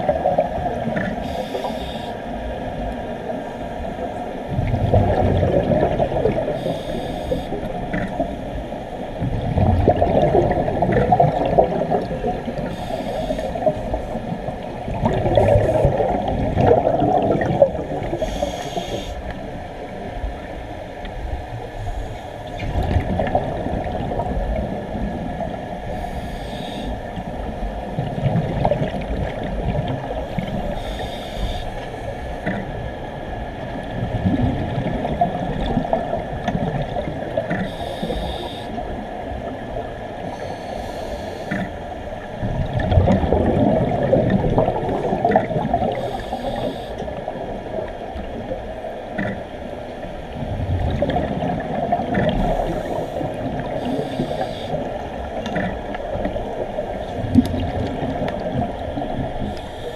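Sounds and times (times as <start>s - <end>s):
regulator inhale hiss: 1.2s - 2.3s, 6.5s - 8.3s, 12.6s - 14.2s, 18.1s - 19.4s, 21.7s - 22.6s, 25.9s - 27.2s, 30.3s - 32.5s, 37.5s - 38.8s, 40.2s - 41.8s, 45.8s - 47.2s, 52.3s - 54.9s, 59.4s - 59.9s
exhaled bubbles gushing: 4.5s - 6.8s, 9.2s - 18.4s, 22.5s - 25.6s, 27.9s - 30.7s, 33.6s - 37.7s, 42.4s - 46.2s, 50.3s - 59.6s.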